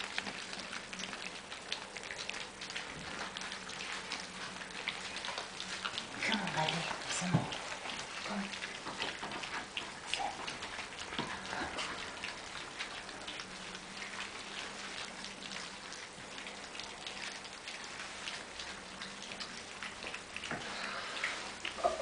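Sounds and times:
puppies lapping and chewing: 0.0s - 22.0s.

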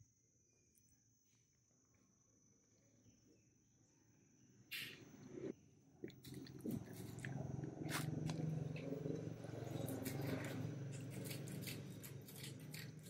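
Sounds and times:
puppies chewing and licking: 6.0s - 13.0s
low steady rumble: 6.3s - 13.0s.

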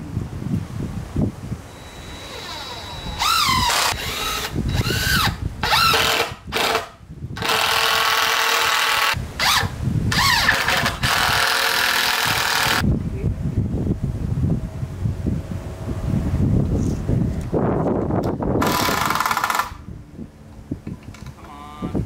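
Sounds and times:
power drill whining: 1.7s - 12.8s.

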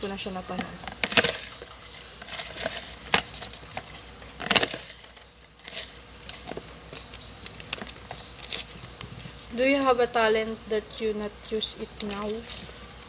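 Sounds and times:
paper slips rustling: 11.9s - 13.0s.

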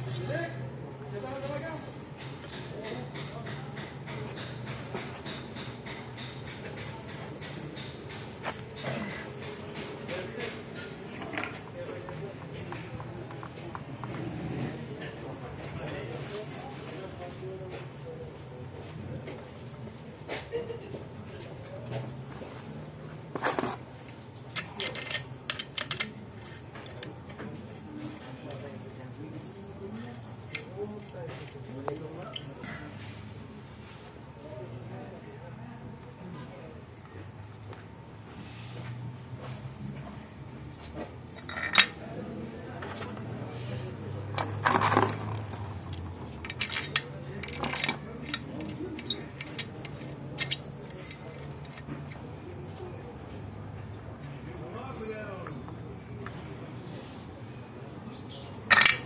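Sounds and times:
metallic clicks of engine parts: 2.1s - 14.2s, 23.3s - 27.6s, 30.1s - 31.1s, 40.9s - 42.1s, 44.2s - 52.3s, 58.2s - 59.0s
metal parts clinking on engine block: 23.3s - 27.4s, 41.3s - 42.1s, 44.2s - 52.2s, 58.6s - 59.0s
loud clattering rattle: 44.4s - 49.7s.

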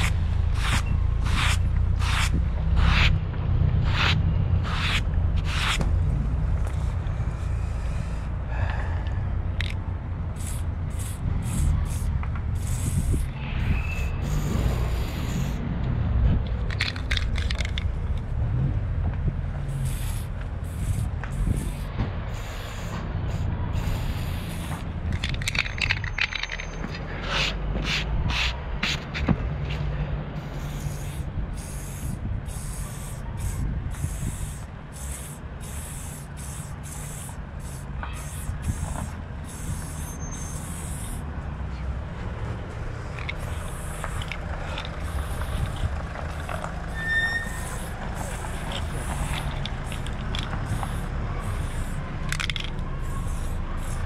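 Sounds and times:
spray can hissing: 0.0s - 3.2s, 3.8s - 5.9s, 9.6s - 15.6s, 19.6s - 26.6s, 27.2s - 29.8s, 30.4s - 41.3s, 42.9s - 54.0s
street traffic rumble: 0.0s - 54.0s.

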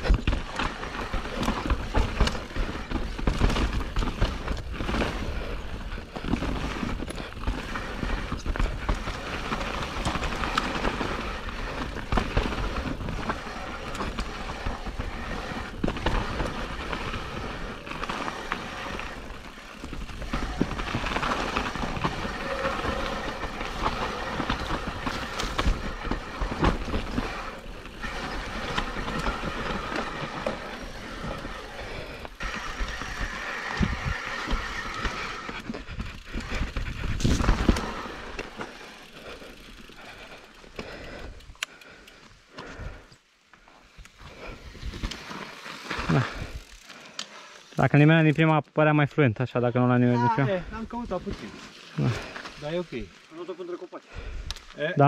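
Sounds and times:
bike rattling and knocking: 0.0s - 41.4s
bike tyres on dirt and rocks: 0.0s - 55.0s.

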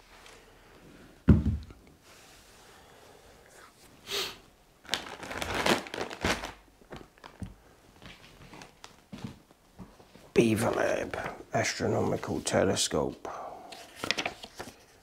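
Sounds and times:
thump: 1.3s - 1.7s
plastic packaging crinkling: 4.8s - 7.5s.

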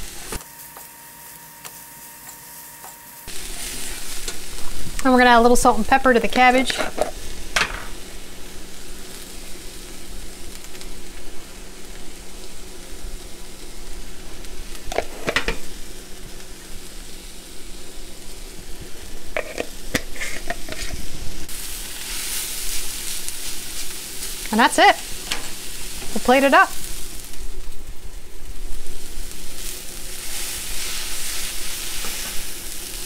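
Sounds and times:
food sizzling in a skillet: 0.0s - 33.0s
spatula scraping a pan: 19.4s - 21.0s.

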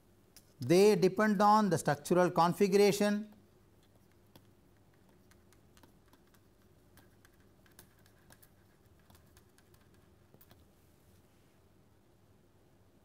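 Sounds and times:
low steady hum: 0.0s - 13.0s
stylus tapping on pen tablet: 3.8s - 10.6s.

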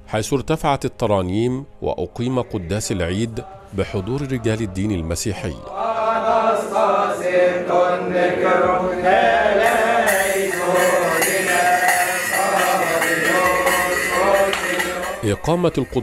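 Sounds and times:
men chanting a hymn: 1.3s - 16.0s
bright high striking: 9.6s - 16.0s.

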